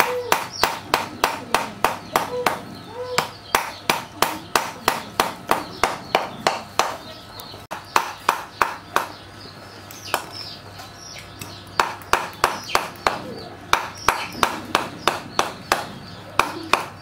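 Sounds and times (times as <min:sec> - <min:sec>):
cleaver chopping on wooden block: 0:00.0 - 0:02.6, 0:03.2 - 0:07.0, 0:07.7 - 0:09.2, 0:11.8 - 0:17.0.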